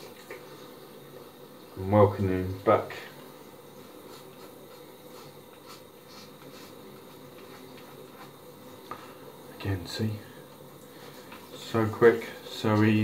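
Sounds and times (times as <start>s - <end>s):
razor scratching on scalp: 3.9s - 8.4s.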